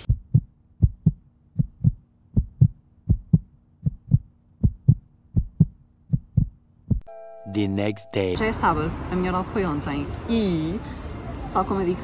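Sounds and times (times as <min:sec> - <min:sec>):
heartbeat thumps: 0:00.1 - 0:07.1.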